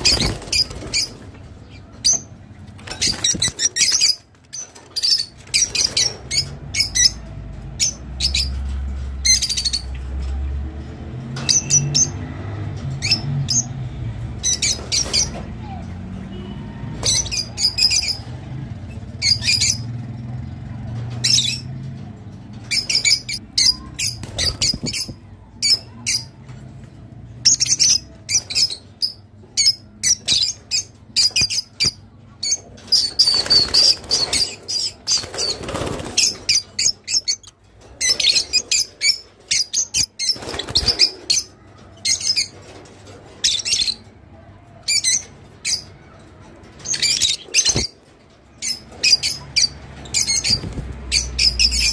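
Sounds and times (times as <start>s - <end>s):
lovebirds chirping: 0.0s - 10.1s, 22.6s - 26.6s, 27.4s - 42.7s, 44.8s - 51.9s.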